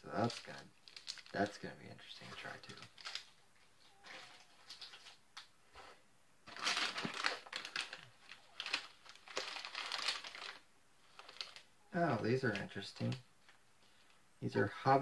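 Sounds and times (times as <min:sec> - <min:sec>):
plastic packaging crinkling: 0:00.2 - 0:05.5, 0:06.4 - 0:11.7.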